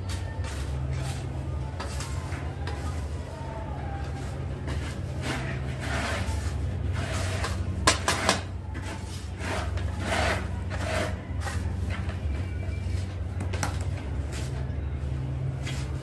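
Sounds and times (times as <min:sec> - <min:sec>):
steady low hum: 0:00.0 - 0:16.0
grout powder scraping on tiles: 0:04.0 - 0:13.1.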